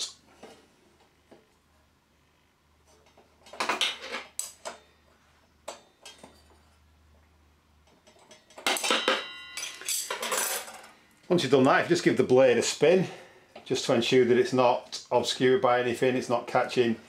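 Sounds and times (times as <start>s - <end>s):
metal spanners clinking: 7.9s - 11.0s
short metallic ring: 8.7s - 10.4s.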